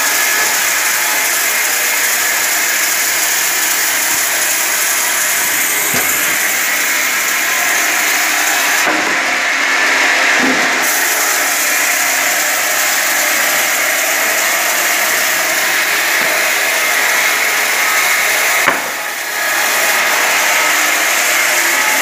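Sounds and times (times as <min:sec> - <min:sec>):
log saw running: 0:00.0 - 0:22.0
sharp knock: 0:05.5 - 0:07.7.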